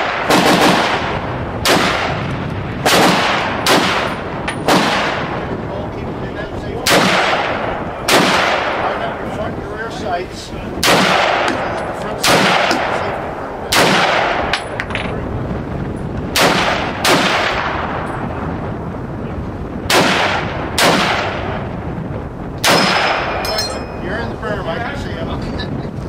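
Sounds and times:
rifle shots echoing: 0:00.0 - 0:05.6, 0:06.8 - 0:09.2, 0:10.8 - 0:15.1, 0:16.3 - 0:18.1, 0:19.9 - 0:21.7, 0:22.6 - 0:23.8.

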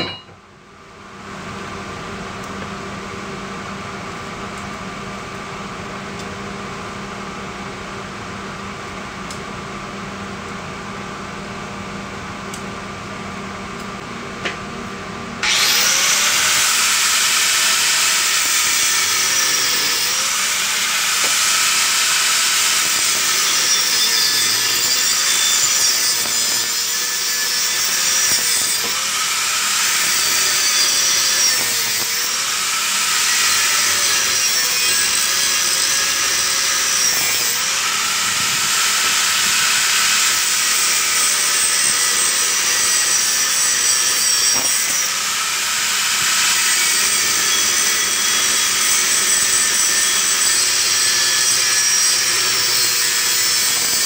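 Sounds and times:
angle grinder cutting steel pipe: 0:15.4 - 0:54.0.

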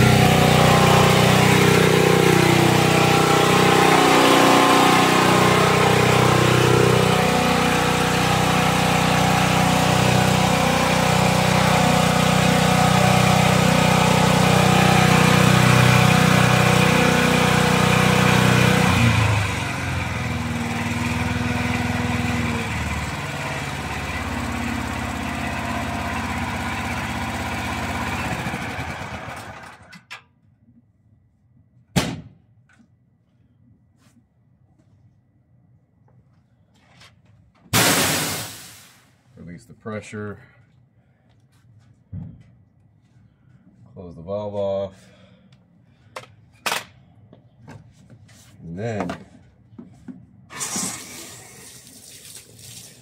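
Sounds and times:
generator engine running: 0:00.0 - 0:29.9
generator winding down: 0:00.0 - 0:30.0.

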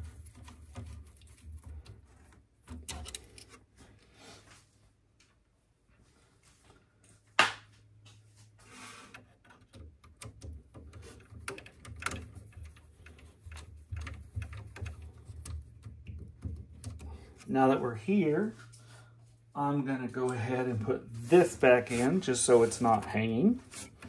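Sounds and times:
low steady hum: 0:09.8 - 0:24.0.

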